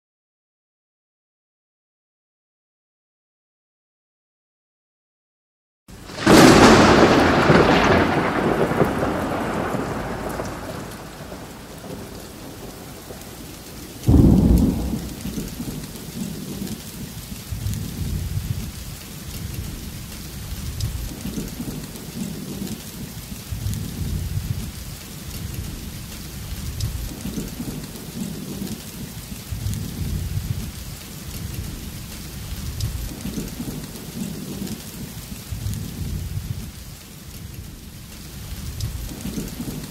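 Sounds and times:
steady rain: 0:05.9 - 0:39.9
thunderclap: 0:06.0 - 0:36.8, 0:37.4 - 0:39.9
thunder crack: 0:06.1 - 0:16.8
low rumbling thunder: 0:06.1 - 0:39.9.

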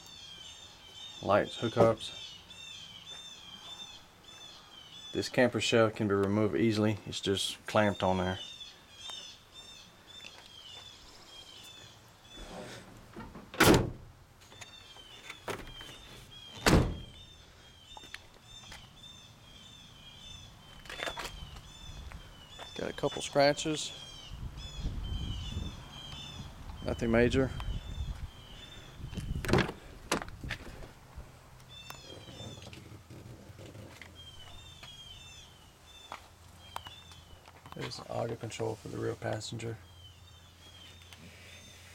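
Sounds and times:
bird chirping: 0:00.0 - 0:05.6, 0:06.5 - 0:12.8, 0:14.4 - 0:29.6, 0:31.6 - 0:38.3, 0:39.4 - 0:41.9
heavy door thunks: 0:13.2 - 0:14.1, 0:16.6 - 0:17.2, 0:29.4 - 0:30.3.

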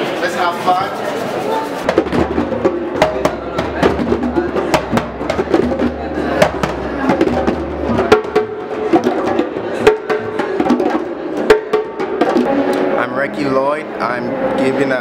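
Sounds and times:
group playing hand drums: 0:00.0 - 0:13.1.

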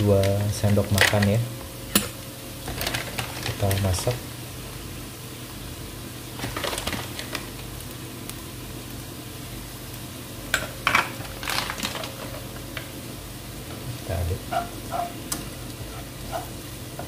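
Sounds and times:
low background hum: 0:00.0 - 0:17.0
spoon scraping wok: 0:14.4 - 0:17.0.

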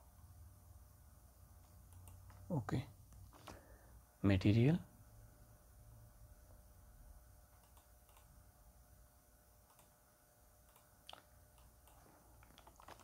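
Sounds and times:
low room hum: 0:00.0 - 0:13.0
computer mouse clicks: 0:01.9 - 0:02.4, 0:07.6 - 0:08.3, 0:09.6 - 0:10.0, 0:10.6 - 0:13.0.

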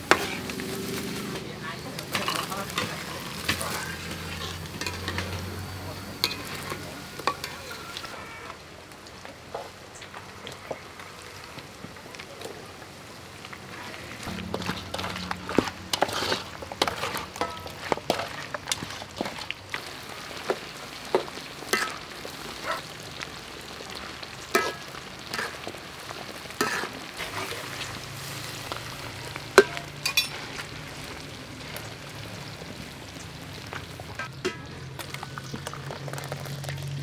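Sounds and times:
thick sauce bubbling and popping: 0:14.2 - 0:37.0.

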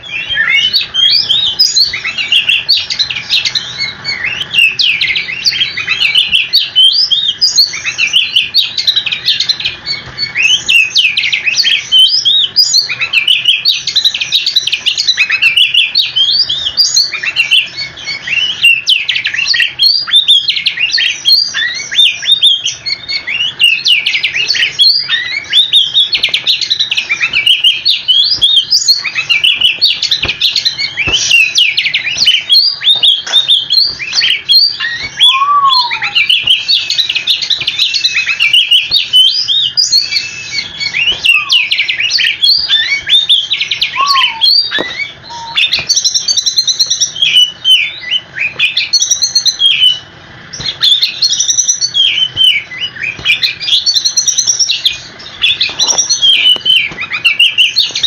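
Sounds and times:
bird singing whistled notes: 0:00.0 - 0:58.0.

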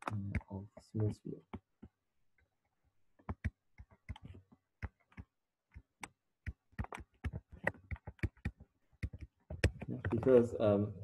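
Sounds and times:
stylus tapping on tablet: 0:03.2 - 0:10.4.

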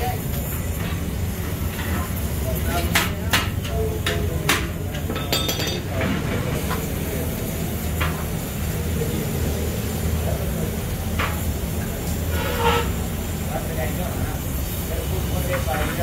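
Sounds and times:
low workshop hum: 0:00.0 - 0:16.0
metallic clinks and taps: 0:05.0 - 0:05.8.

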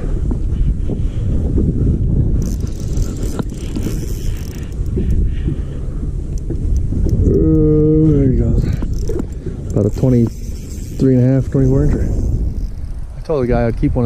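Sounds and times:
wind buffeting microphone: 0:00.0 - 0:14.0
faint clicks: 0:02.4 - 0:05.2, 0:06.3 - 0:07.6.

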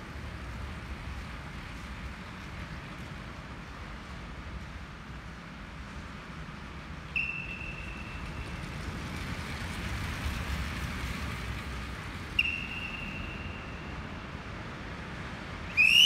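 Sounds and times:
low rumble of bikes riding: 0:00.0 - 0:15.8
long whistle blasts: 0:07.2 - 0:08.2, 0:12.4 - 0:14.0, 0:15.7 - 0:16.0.

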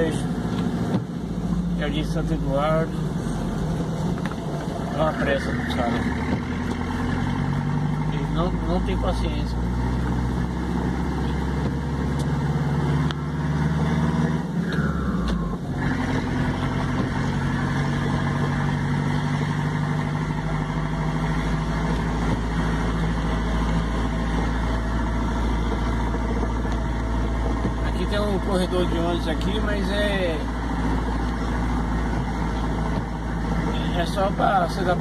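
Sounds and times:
road noise: 0:00.0 - 0:35.0
vehicle engine: 0:00.0 - 0:35.0.

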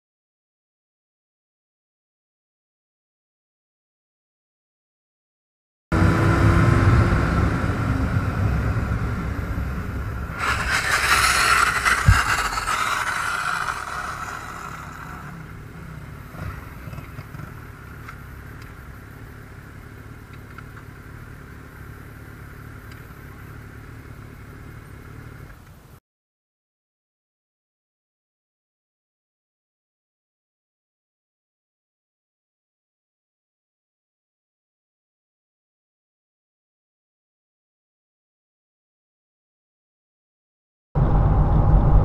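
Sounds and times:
motorcycle engine rumbling: 0:07.6 - 0:25.5
wind noise: 0:10.3 - 0:15.4, 0:41.0 - 0:42.0
loud rushing hiss: 0:10.3 - 0:15.7.

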